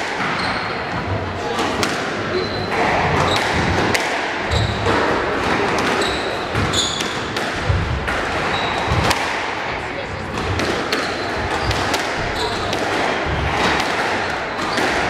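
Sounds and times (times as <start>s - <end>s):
spectators talking: 0.0s - 15.0s
squash ball knocking off rackets and walls: 1.6s - 9.6s, 10.3s - 15.0s
shoes squeaking on wooden floor: 4.5s - 5.0s, 6.0s - 7.2s, 11.0s - 13.8s.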